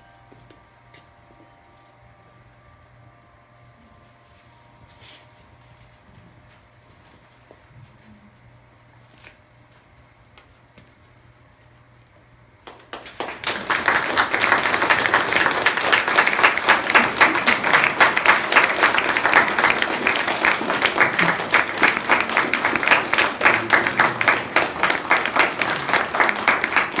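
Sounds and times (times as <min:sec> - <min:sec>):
audience applauding: 0:12.6 - 0:27.0.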